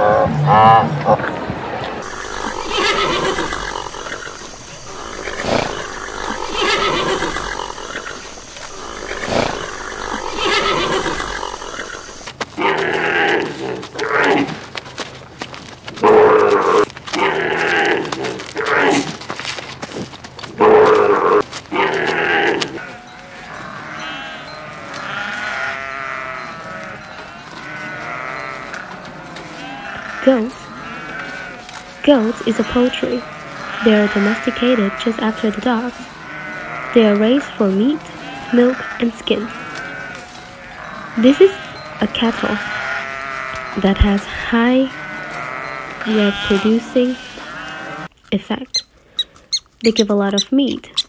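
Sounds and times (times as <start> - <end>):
zebra barking bray: 2.0 - 12.3
goats bleating: 2.0 - 14.7, 20.6 - 48.1.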